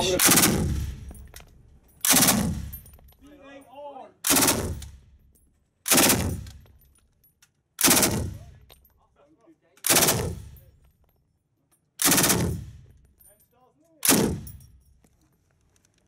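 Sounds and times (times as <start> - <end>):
machine gun bursts echoing: 0.0 - 1.1, 2.0 - 2.7, 4.3 - 4.9, 5.9 - 6.5, 7.8 - 8.4, 9.8 - 10.6, 12.0 - 12.8, 14.0 - 14.6.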